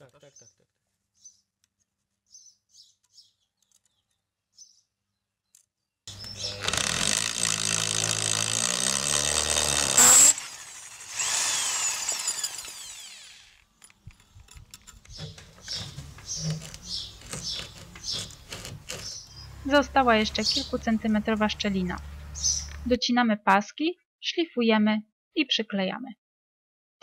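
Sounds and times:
electric drill boring through concrete: 6.4s - 13.7s.

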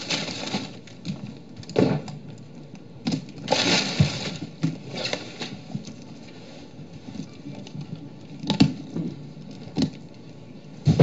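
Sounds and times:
packing material crinkling: 0.0s - 1.2s, 3.4s - 6.1s.

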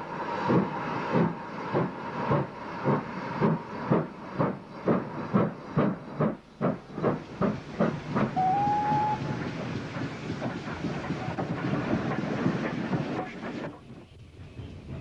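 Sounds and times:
steam locomotive exhaust beating: 0.0s - 15.0s
steam whistle: 8.4s - 9.4s.

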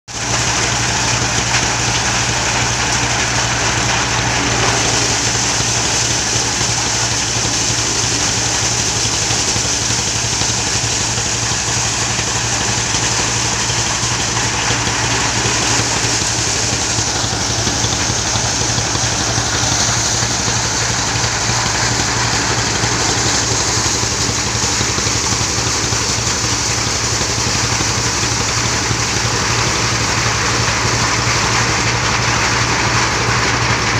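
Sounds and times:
corn rattling through thresher: 0.1s - 33.9s
diesel engine drone: 0.1s - 33.9s.

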